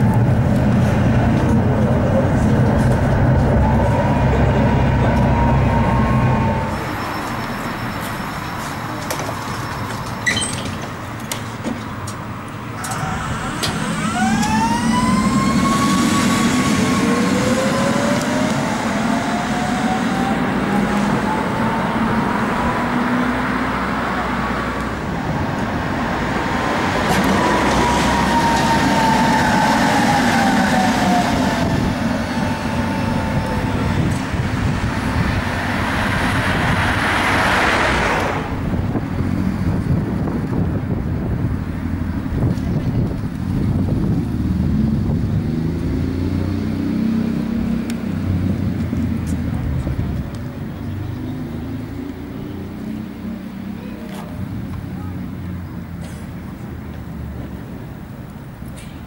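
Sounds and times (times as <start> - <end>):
tram motor whine: 0.0 - 10.3, 12.4 - 43.9.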